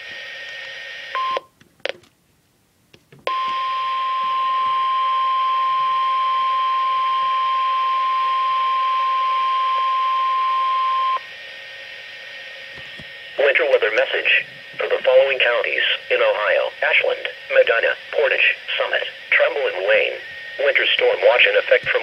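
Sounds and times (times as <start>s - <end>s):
steady alarm tone: 3.3s - 22.0s
radio hiss: 7.9s - 22.0s.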